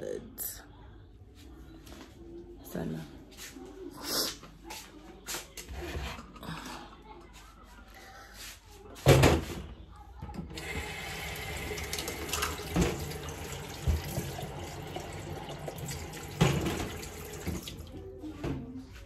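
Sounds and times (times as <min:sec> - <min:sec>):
water filling a kettle: 0:10.5 - 0:18.0.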